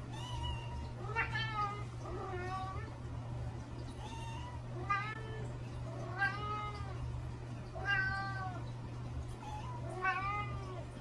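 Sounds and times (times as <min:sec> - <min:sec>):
cat meowing: 0:00.1 - 0:02.9, 0:04.0 - 0:07.0, 0:07.8 - 0:08.6, 0:09.3 - 0:10.9.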